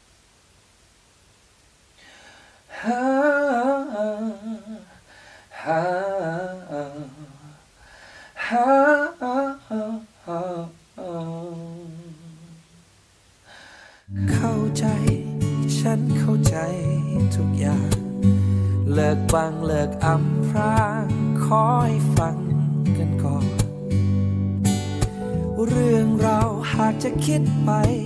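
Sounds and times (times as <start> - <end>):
man singing unaccompanied: 2.7 - 7.7, 8.4 - 12.8, 14.1 - 23.9, 25.2 - 28.0
guitar-led music: 14.1 - 28.0.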